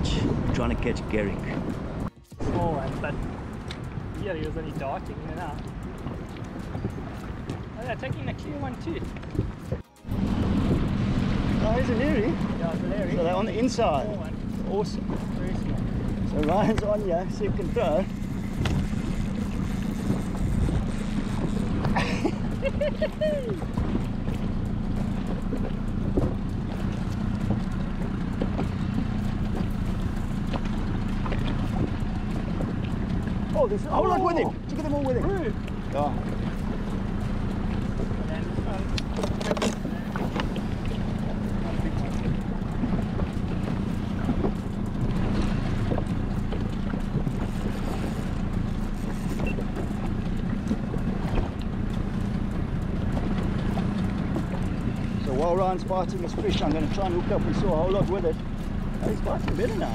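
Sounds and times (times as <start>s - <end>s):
small boat engine drone: 0.0s - 59.9s
wind buffeting microphone: 0.0s - 59.9s
faint clicks: 34.8s - 59.8s.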